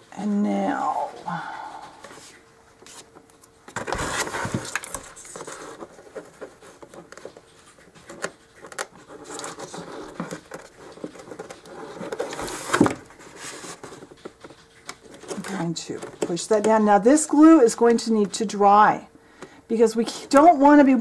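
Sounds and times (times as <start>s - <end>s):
rustling: 0.8s - 17.2s.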